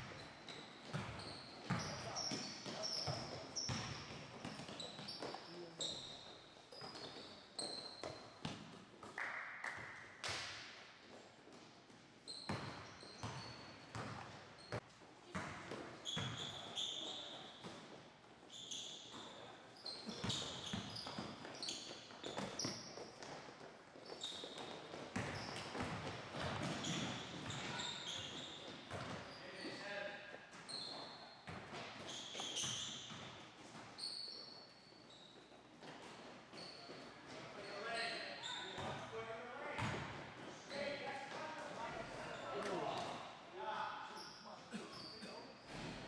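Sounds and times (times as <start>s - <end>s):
sneakers squeaking on hardwood: 0.0s - 8.8s, 12.2s - 29.8s, 30.5s - 39.1s.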